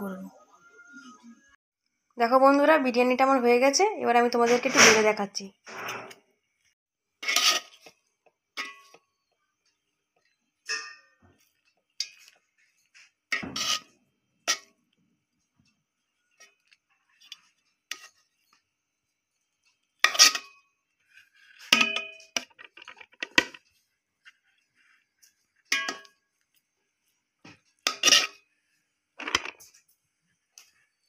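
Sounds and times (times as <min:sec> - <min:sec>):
spoon scraping metal pot: 0:04.4 - 0:06.3, 0:07.2 - 0:09.2, 0:10.6 - 0:14.8, 0:16.3 - 0:18.6, 0:20.0 - 0:23.6, 0:27.8 - 0:28.6.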